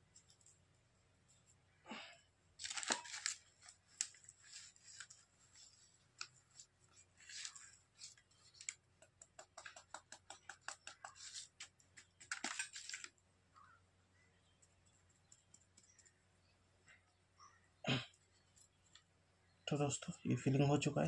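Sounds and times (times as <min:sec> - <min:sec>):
paper rustling: 0:02.6 - 0:08.8, 0:10.6 - 0:13.2.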